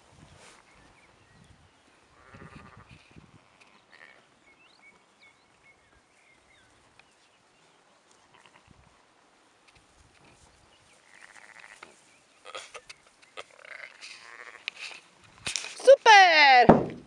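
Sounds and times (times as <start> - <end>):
sheep bleating: 2.1 - 2.9, 11.0 - 12.7, 13.4 - 14.7.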